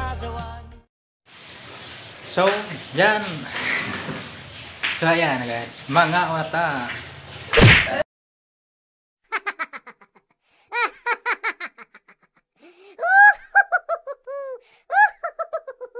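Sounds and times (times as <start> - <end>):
high-pitched giggling: 9.3 - 12.4, 13.0 - 15.9.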